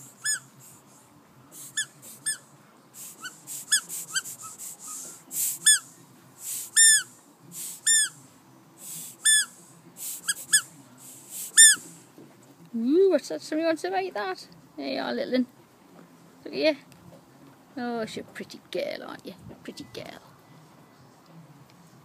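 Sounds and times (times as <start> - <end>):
soft breathy hisses: 0.0 - 2.3, 2.9 - 6.8, 7.4 - 12.2
squeaky dog toy squeaking: 0.2 - 0.5, 1.6 - 2.4, 5.6 - 5.8, 6.8 - 7.1, 7.8 - 8.2, 9.2 - 9.6, 11.5 - 11.9.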